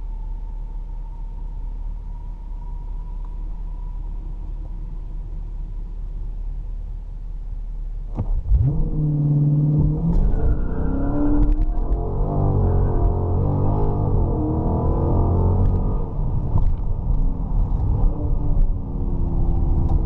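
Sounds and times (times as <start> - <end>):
car cabin rumble: 0.0 - 20.0
engine accelerating hard: 8.2 - 16.6.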